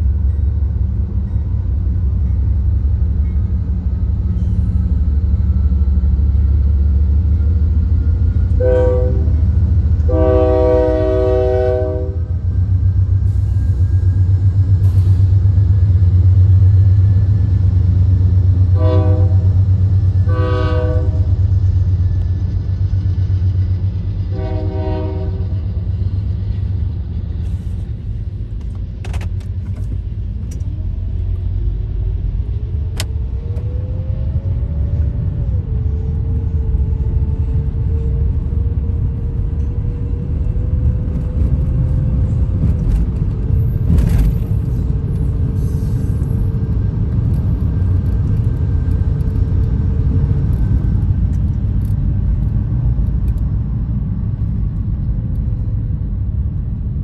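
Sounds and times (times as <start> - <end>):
engine hum: 0.0 - 57.0
car road rumble: 25.3 - 57.0.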